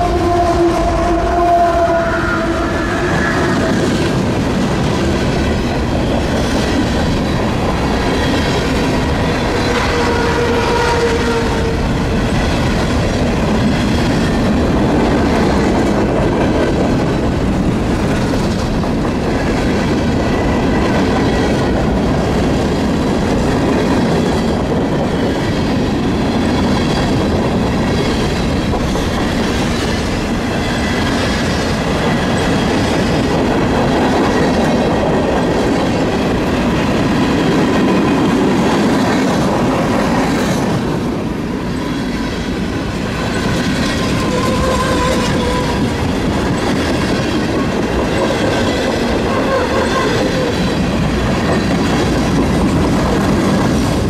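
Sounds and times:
steel wheels clattering on rails: 2.7 - 54.0
high-pitched wheel squeal: 44.2 - 45.9.

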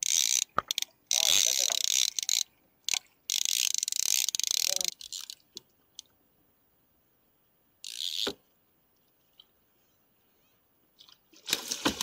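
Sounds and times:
fishing reel clicking rapidly: 0.0 - 5.4, 7.8 - 8.3.

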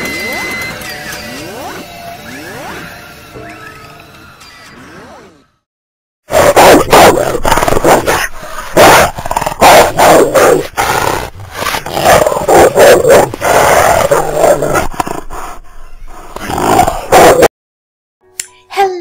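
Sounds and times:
dog snarling and growling: 6.3 - 17.5.

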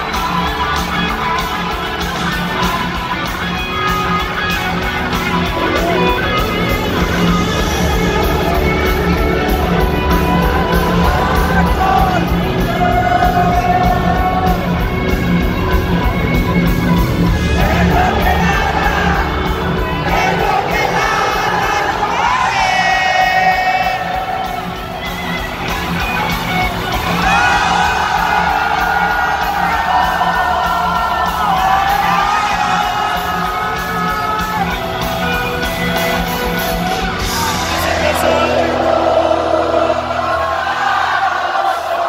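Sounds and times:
live rock band playing: 0.0 - 41.2
person singing: 37.3 - 40.6.

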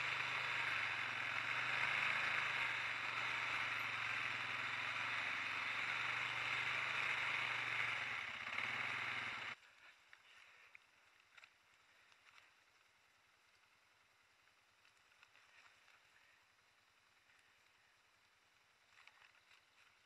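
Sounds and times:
quad bike engine running: 0.0 - 10.6
faint clicks: 9.8 - 12.9.

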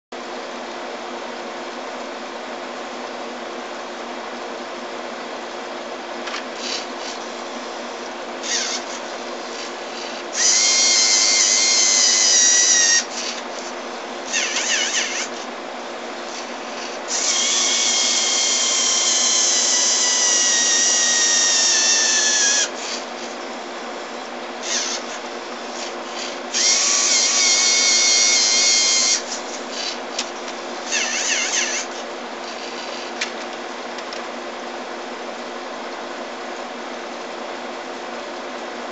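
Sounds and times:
steady low hum: 0.2 - 38.9
robot motors whining: 6.6 - 7.8, 8.4 - 15.5, 16.2 - 23.6, 24.2 - 33.4.

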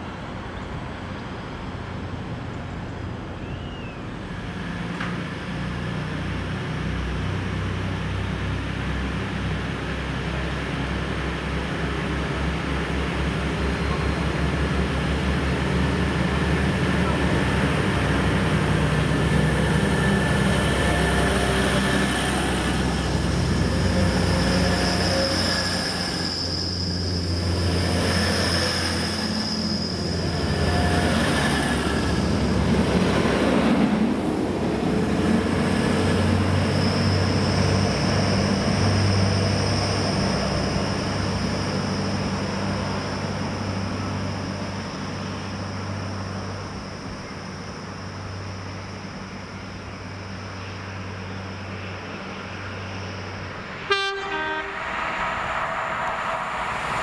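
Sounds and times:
train running rumble: 4.0 - 57.0
high steady whine: 52.6 - 57.0.

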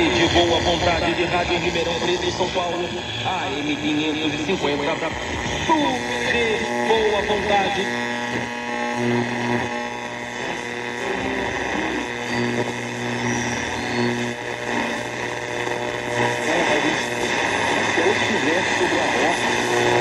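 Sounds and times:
faint speech on radio: 0.0 - 8.2, 14.1 - 20.0
buzzing hum: 0.0 - 20.0
radio static hiss: 0.0 - 20.0
whistling tones: 12.3 - 14.2.

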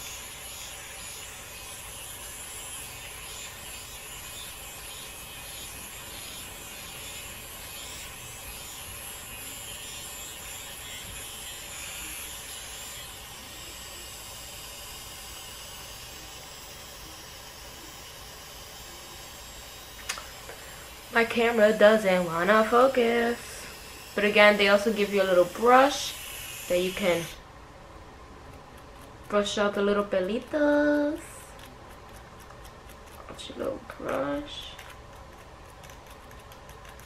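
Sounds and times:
trimmer motor buzzing: 0.0 - 27.4.

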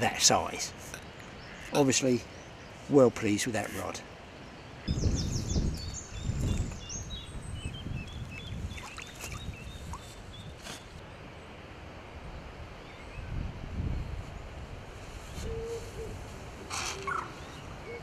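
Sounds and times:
bird chirping: 0.0 - 11.0
water sloshing and splashing: 8.5 - 10.2.

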